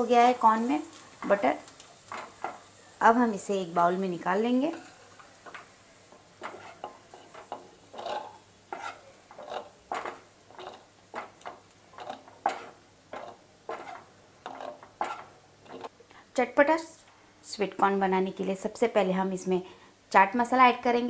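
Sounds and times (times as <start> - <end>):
spatula scraping frying pan: 0.9 - 2.7, 3.8 - 15.9.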